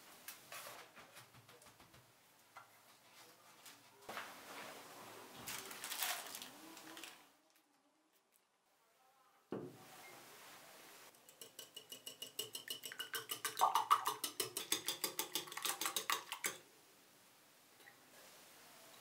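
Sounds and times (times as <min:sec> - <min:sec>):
whisk clicking in glass bowl: 0:11.1 - 0:16.6.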